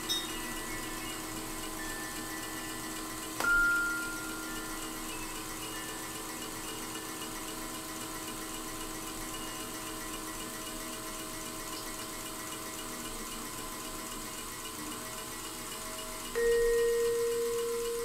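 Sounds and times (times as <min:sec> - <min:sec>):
mallet roll on keyboard percussion: 0:16.4 - 0:18.0.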